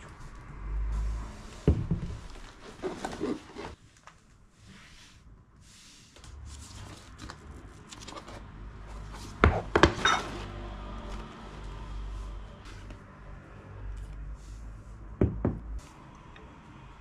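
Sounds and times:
cloth bag rustling: 0:02.4 - 0:03.8.

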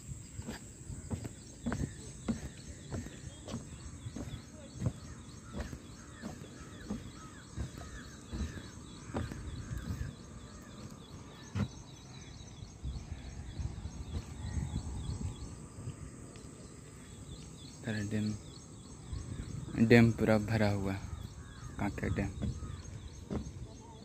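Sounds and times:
small birds chirping: 0:00.0 - 0:24.0
steady outdoor hiss: 0:00.0 - 0:24.0
dull thumps: 0:00.4 - 0:10.2, 0:22.1 - 0:23.6.

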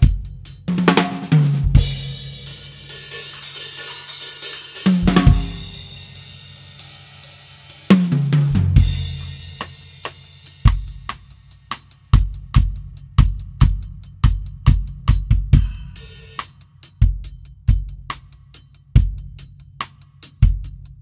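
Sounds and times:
drum kit hits: 0:00.0 - 0:06.4, 0:07.9 - 0:11.2.

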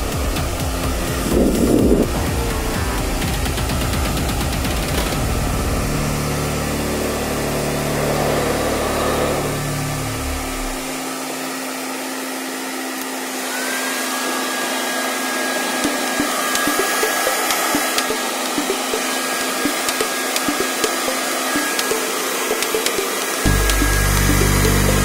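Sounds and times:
hair dryer blowing air: 0:00.0 - 0:02.1, 0:03.0 - 0:25.0
steady high whine: 0:04.5 - 0:11.2, 0:15.6 - 0:25.0
low hum: 0:04.8 - 0:11.0.

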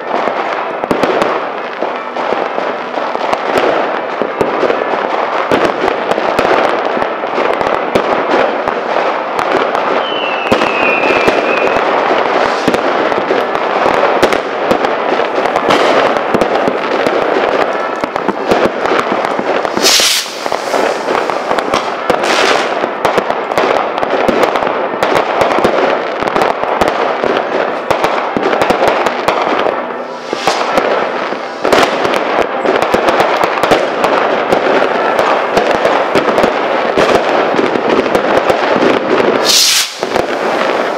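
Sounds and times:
fireworks crackling and banging: 0:00.0 - 0:40.9
falling whistle: 0:10.0 - 0:11.8
loud hissing rush: 0:19.8 - 0:21.1, 0:30.1 - 0:30.7, 0:39.4 - 0:40.9.

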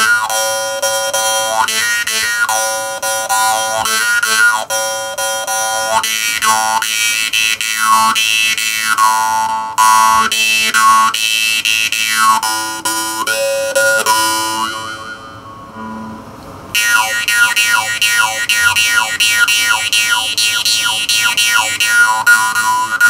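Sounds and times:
jaw harp twanging: 0:13.3 - 0:23.0.

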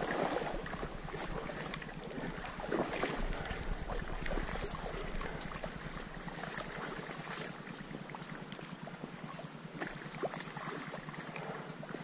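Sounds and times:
wind on microphone: 0:00.0 - 0:06.8
small splashes: 0:00.0 - 0:12.0
water sloshing: 0:00.0 - 0:12.0.

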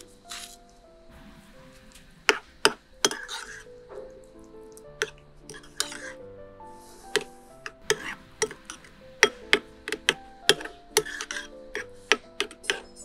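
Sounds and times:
background music: 0:00.0 - 0:13.0
spoon scraping bowl: 0:00.3 - 0:00.6, 0:01.8 - 0:03.8, 0:05.0 - 0:06.2, 0:06.9 - 0:13.0.

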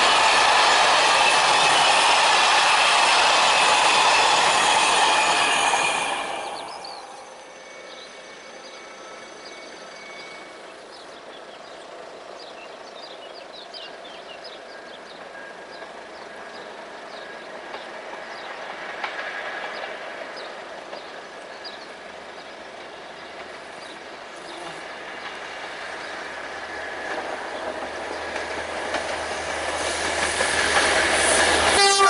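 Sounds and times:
distant train rumble: 0:00.0 - 0:32.0
small birds chirping: 0:09.6 - 0:29.5.

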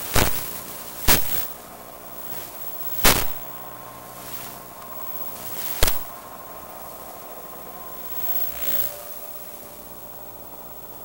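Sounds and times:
loud crackling bursts: 0:00.0 - 0:09.8
faint whine: 0:00.0 - 0:11.0
radio static hiss: 0:00.0 - 0:11.0.

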